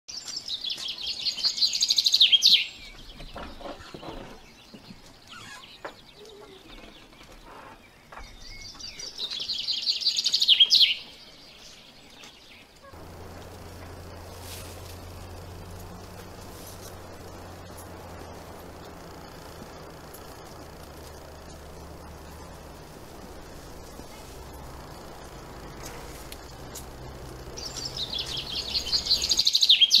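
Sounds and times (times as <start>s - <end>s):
bird chirping trill: 12.9s - 30.0s.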